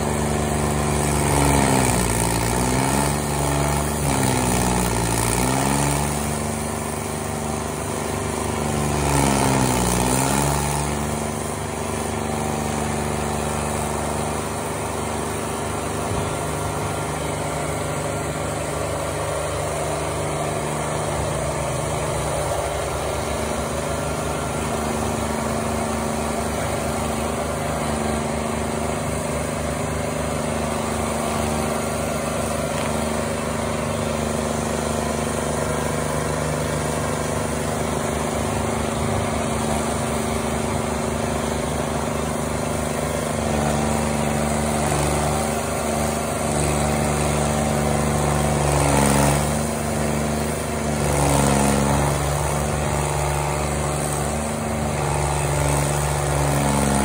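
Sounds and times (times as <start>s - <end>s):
cutter wheel grinding stump: 0.0s - 57.0s
stump grinder engine running: 0.0s - 57.0s.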